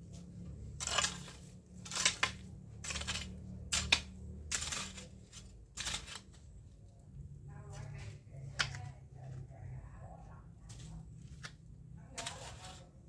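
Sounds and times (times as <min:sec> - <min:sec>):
garden tool scraping dry soil: 0:00.0 - 0:07.0, 0:10.6 - 0:13.0.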